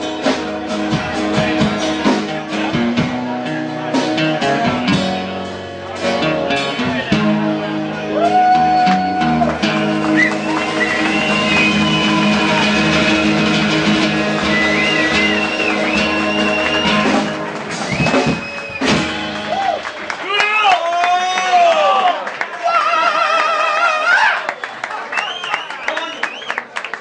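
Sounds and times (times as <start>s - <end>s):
guitar bending held notes: 0.0s - 19.6s
live band music: 0.0s - 20.5s.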